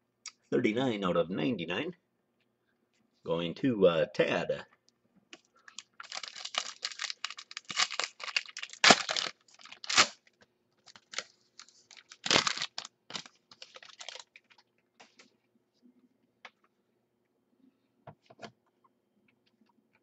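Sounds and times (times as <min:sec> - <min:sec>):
foil pack tearing and crinkling: 0:05.7 - 0:14.6.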